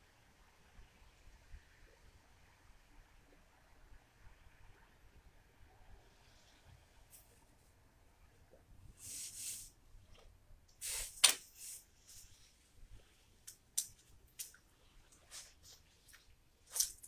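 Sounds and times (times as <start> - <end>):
light clicks of small objects: 13.4 - 17.0.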